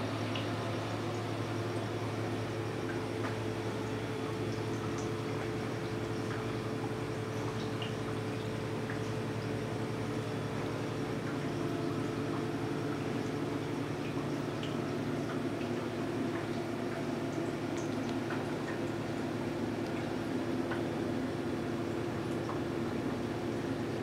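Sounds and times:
aquarium pumps and fan humming: 0.0s - 24.0s
water trickling and dripping: 0.0s - 24.0s.

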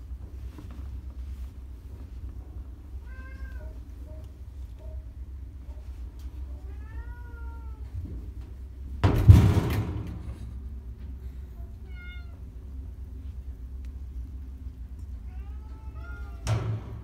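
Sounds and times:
cat meowing: 6.6s - 7.9s, 11.8s - 12.4s, 15.3s - 16.5s
loud thump with rustle: 9.0s - 10.4s.

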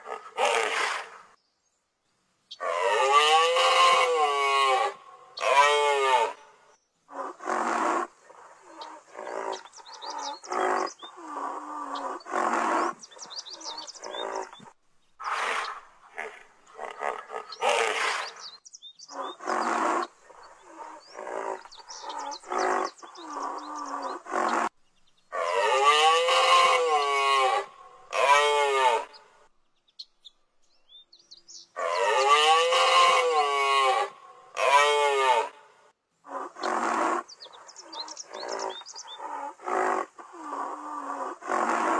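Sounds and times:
animal calls: 7.1s - 24.7s, 25.3s - 29.3s, 31.8s - 35.6s, 36.2s - 41.9s.

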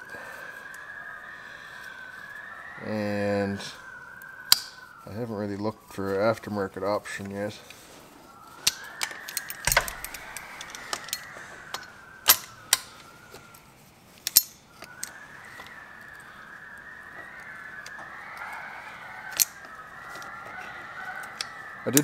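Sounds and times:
birds calling: 6.8s - 22.0s
pliers clinking on metal: 8.6s - 12.9s, 14.2s - 15.1s.

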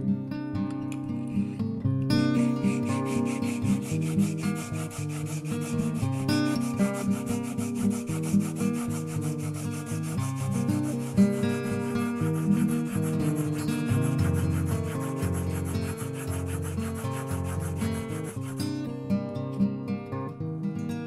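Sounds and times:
blade rubbing on sharpening stone: 2.2s - 18.9s.

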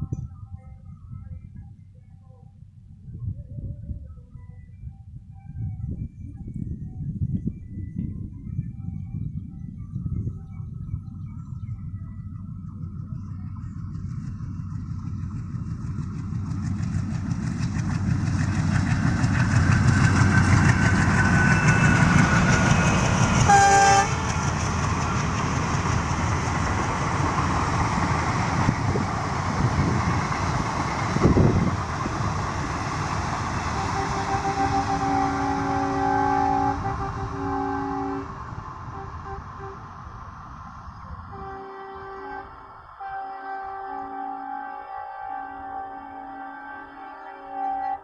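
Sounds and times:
passenger train passing: 0.0s - 48.0s
train horn blast: 20.7s - 24.5s, 32.8s - 39.9s, 41.3s - 48.0s.

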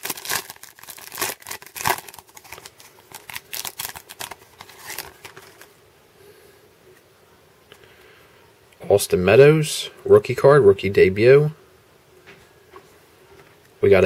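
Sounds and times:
foil wrapper crinkling and tearing: 0.0s - 5.7s.

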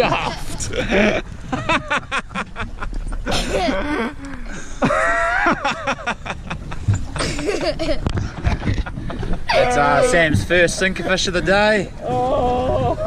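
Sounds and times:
boat noise: 0.0s - 13.0s
low rumble of wind: 0.0s - 13.0s
man laughing and calling out: 9.5s - 10.4s.

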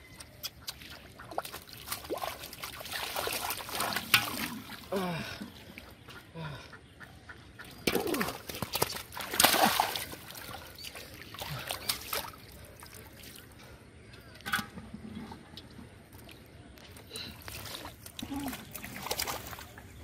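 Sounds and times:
splashing in muddy water: 0.3s - 5.9s, 7.8s - 13.6s, 17.3s - 20.0s.

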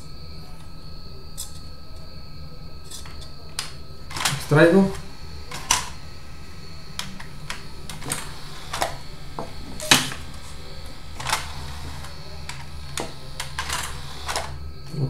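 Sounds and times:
steady low hum: 0.0s - 15.0s
disc tray clicking and knocking: 2.9s - 14.8s.

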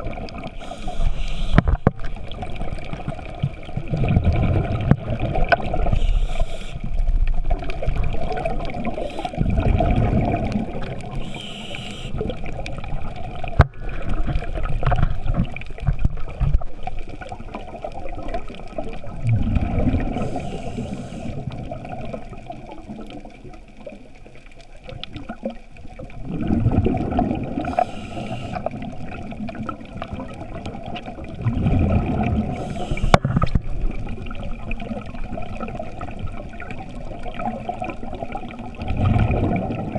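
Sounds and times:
exhaled bubbles rumbling underwater: 0.0s - 39.9s
regulator hissing inhalations: 0.6s - 1.7s, 5.9s - 6.9s, 8.9s - 9.4s, 11.2s - 12.2s, 20.2s - 21.4s, 27.6s - 28.7s, 32.6s - 33.2s.

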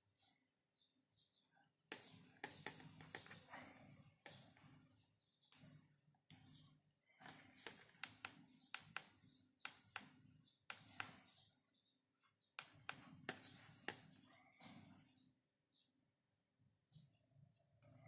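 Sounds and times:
fingers tapping a smartphone: 1.9s - 4.8s, 5.5s - 11.5s, 12.5s - 15.0s.

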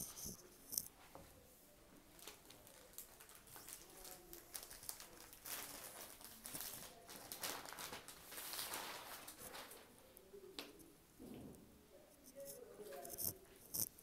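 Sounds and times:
fabric rustling: 2.2s - 9.9s.

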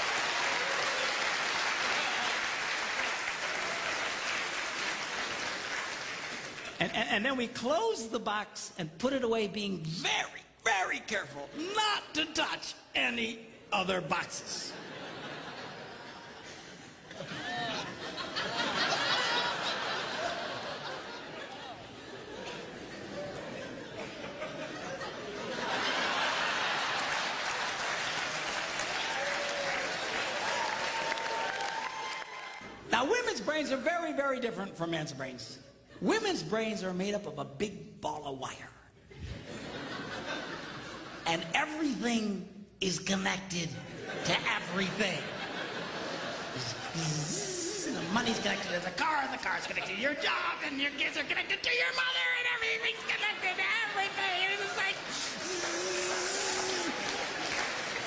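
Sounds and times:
audience applauding: 0.0s - 6.8s, 25.9s - 32.7s, 52.2s - 58.0s.

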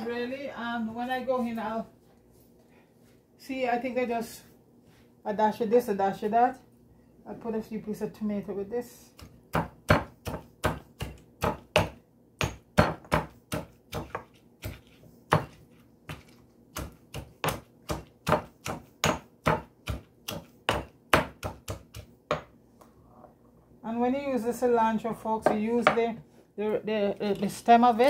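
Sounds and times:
pestle pounding in a mortar: 9.2s - 22.5s.

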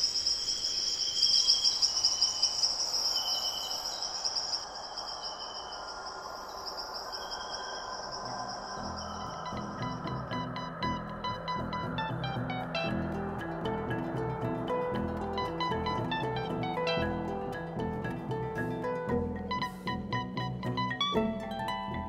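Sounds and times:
short insect trills: 0.0s - 14.0s
high cricket-like trill: 0.0s - 22.0s.

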